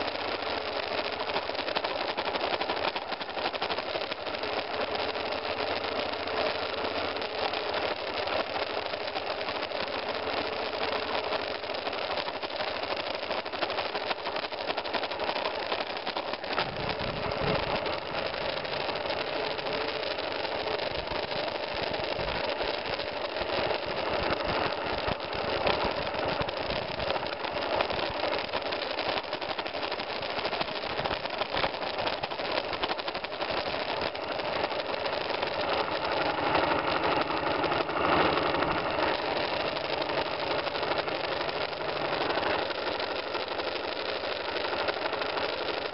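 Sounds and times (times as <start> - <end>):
motorcycle engine running: 3.8 - 30.3, 33.3 - 45.9
heavy low rumble: 16.5 - 19.8.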